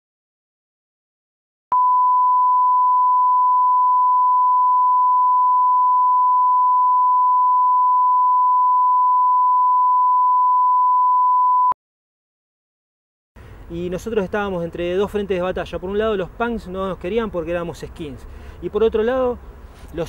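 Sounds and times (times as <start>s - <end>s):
electronic test tone beep: 1.7s - 11.8s.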